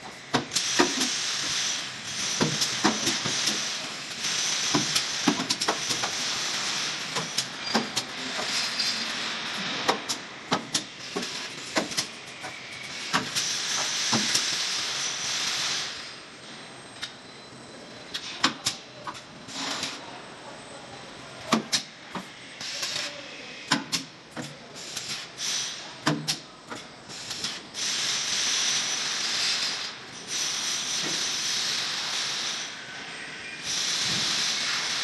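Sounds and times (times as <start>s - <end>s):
welding hissing and sizzling: 0.5s - 16.2s, 24.8s - 26.4s, 27.1s - 32.9s, 33.6s - 35.0s.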